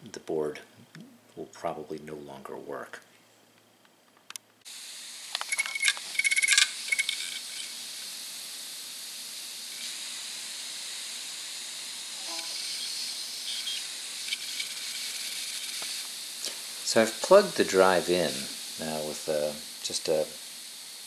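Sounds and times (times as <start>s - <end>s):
hard drive spinning hiss: 4.6s - 21.0s.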